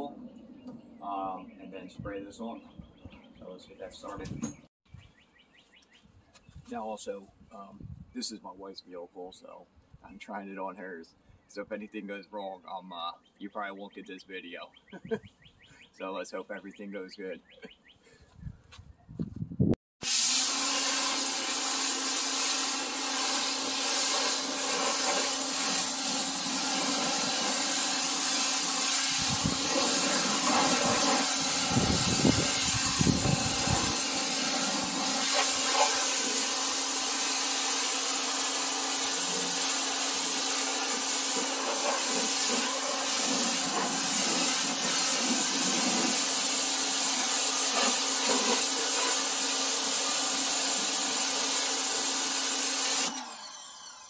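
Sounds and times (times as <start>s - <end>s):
pressure washer running: 20.0s - 54.0s.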